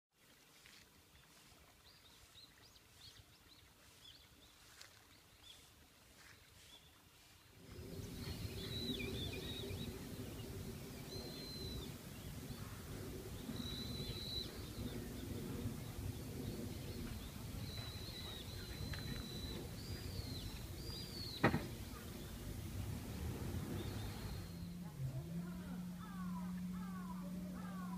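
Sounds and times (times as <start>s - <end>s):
small birds chirping: 0.2s - 27.9s
steady low rumble: 7.5s - 27.9s.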